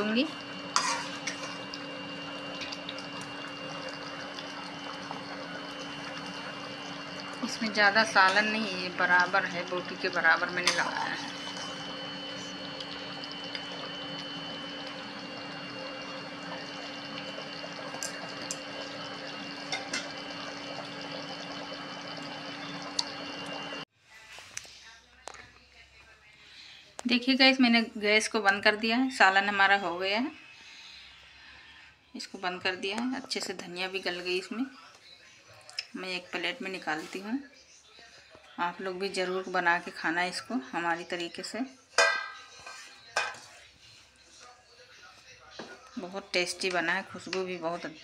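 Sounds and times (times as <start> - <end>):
curry bubbling and hissing: 0.0 - 23.9.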